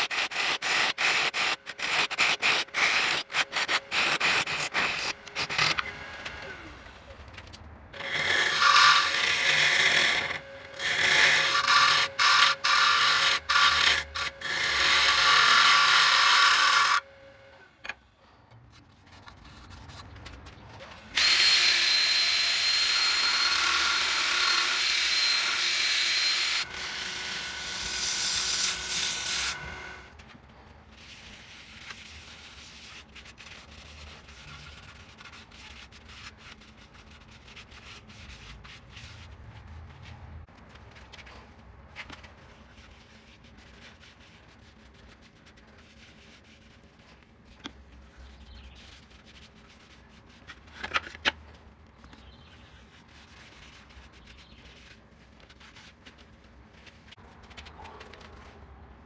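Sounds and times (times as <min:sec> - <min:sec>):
gouge cutting wood on lathe: 0:08.0 - 0:17.0, 0:21.2 - 0:30.1
cordless drill whining: 0:21.2 - 0:27.8.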